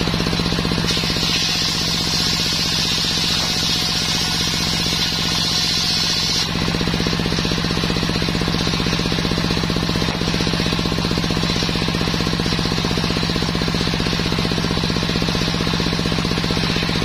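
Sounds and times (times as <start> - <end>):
engine chugging: 0.0 - 17.0
saw blade hissing through wood: 0.8 - 6.5.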